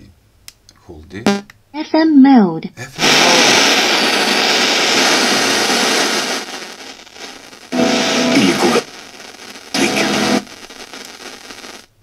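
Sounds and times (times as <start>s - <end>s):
radio static hiss: 2.9s - 12.0s.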